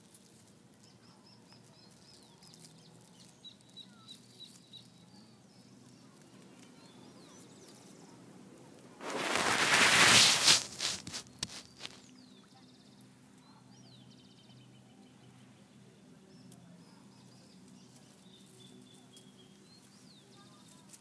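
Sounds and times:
loud crackling rush of noise: 0:09.0 - 0:12.0.

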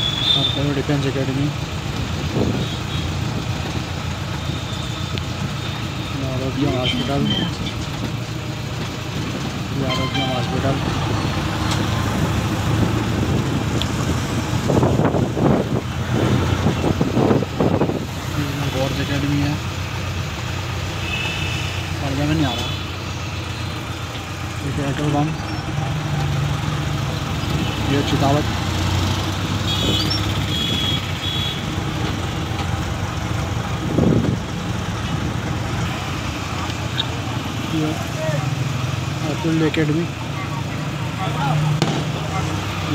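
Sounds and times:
bus passing rumble: 0:00.0 - 0:42.9
road noise: 0:00.0 - 0:42.9
vehicle engine hum: 0:00.0 - 0:42.9
low engine hum: 0:22.9 - 0:42.9.

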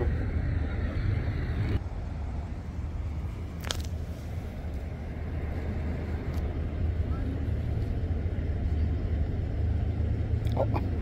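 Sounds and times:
vehicle engines idling: 0:00.0 - 0:11.0.

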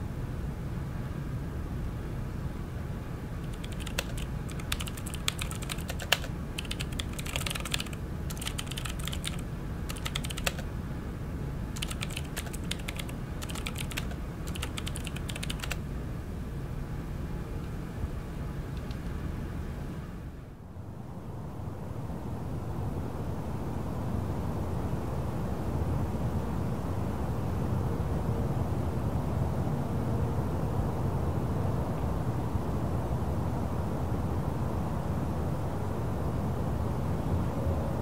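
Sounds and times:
keyboard typing clicks: 0:03.4 - 0:10.7, 0:11.8 - 0:15.8
steady low rumble: 0:03.4 - 0:38.0.

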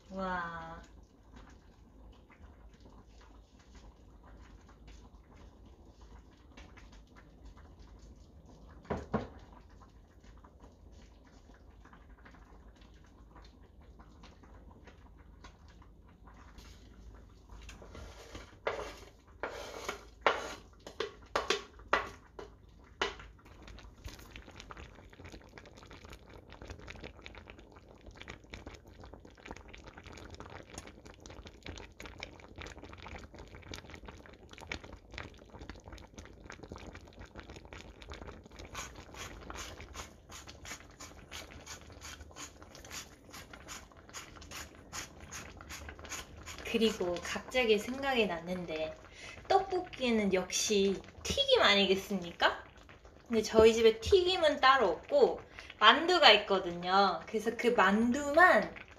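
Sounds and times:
pot simmering with soft bubbling: 0:00.0 - 0:58.9
knife scraping cutting board: 0:18.0 - 0:20.6.

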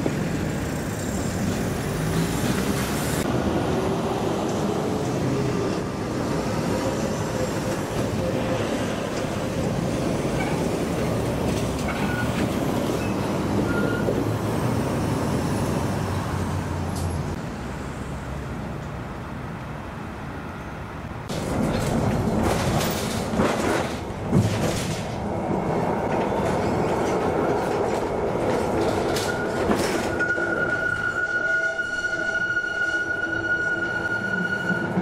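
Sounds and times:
tram rumbling on track: 0:00.0 - 0:35.0
high wheel squeal: 0:11.9 - 0:12.4, 0:13.0 - 0:14.2, 0:29.1 - 0:35.0
wheel clatter and knocks: 0:21.3 - 0:25.2.

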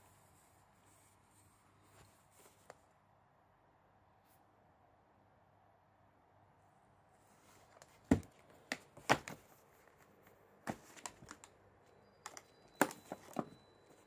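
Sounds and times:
sharp taps on cardboard: 0:08.1 - 0:09.4
crinkly rustles: 0:09.2 - 0:11.5.

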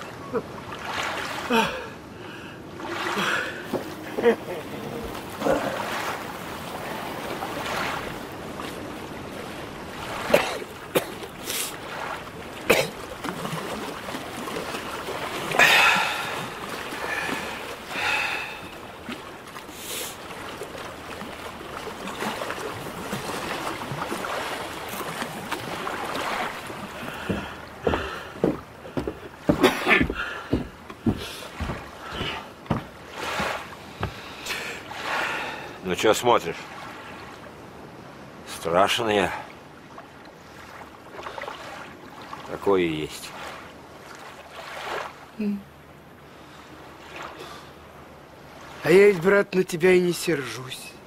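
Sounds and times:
sea water lapping: 0:00.0 - 0:51.0
splashes and knocks: 0:02.8 - 0:35.2.

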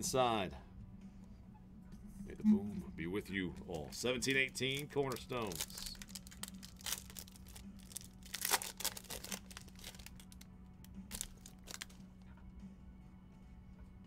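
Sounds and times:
foil wrapper crinkling and tearing: 0:04.2 - 0:12.0.

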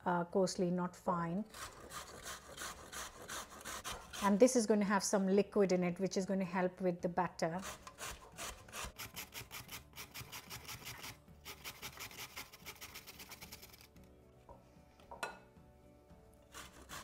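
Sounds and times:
grater rasping strokes: 0:01.5 - 0:04.4, 0:07.6 - 0:13.9, 0:16.5 - 0:17.0.

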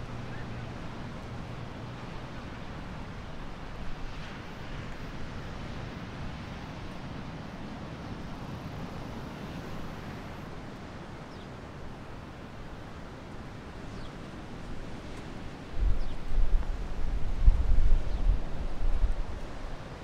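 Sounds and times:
ocean surf: 0:00.0 - 0:20.0
wind buffeting microphone: 0:15.0 - 0:19.7.

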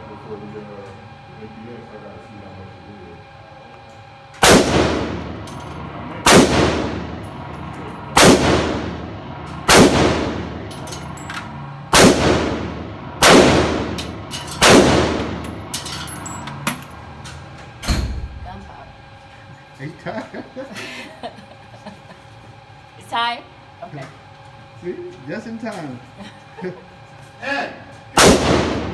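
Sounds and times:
rifle shots indoors: 0:04.4 - 0:05.6, 0:06.2 - 0:07.2, 0:08.2 - 0:09.0, 0:09.6 - 0:10.6, 0:11.9 - 0:15.5, 0:28.2 - 0:28.9.

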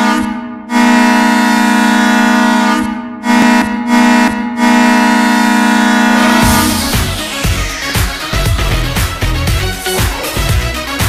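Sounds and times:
hockey goal horn blasts: 0:00.0 - 0:09.9.

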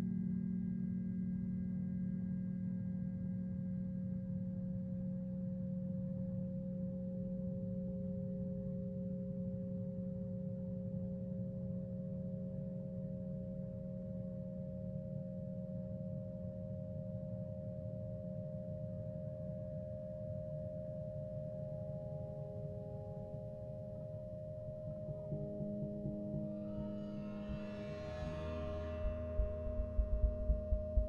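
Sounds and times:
low drone: 0:25.8 - 0:31.0.

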